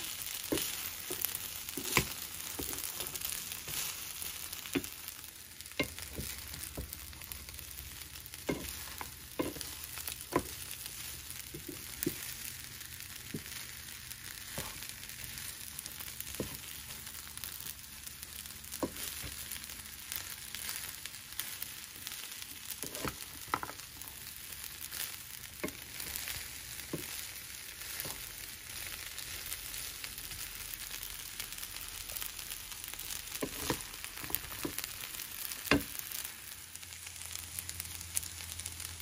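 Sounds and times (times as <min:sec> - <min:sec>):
wooden spatula stirring: 0:00.0 - 0:31.0, 0:32.1 - 0:36.3
rice sizzling in a skillet: 0:00.0 - 0:39.0
spatula knocking against pan: 0:05.8 - 0:07.1, 0:08.3 - 0:10.7.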